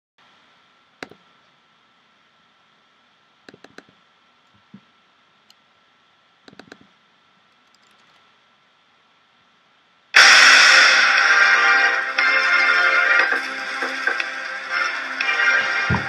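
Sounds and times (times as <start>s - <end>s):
faint high hum: 0.2s - 16.0s
faint clicks and taps: 1.0s - 1.6s, 3.5s - 5.6s, 6.4s - 6.9s.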